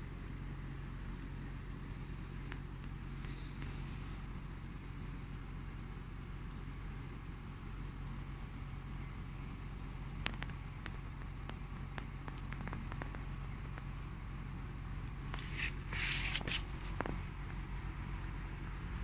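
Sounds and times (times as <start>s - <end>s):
low mechanical hum: 0.0s - 19.0s
faint clicks: 10.2s - 13.9s
rustle: 15.0s - 17.6s.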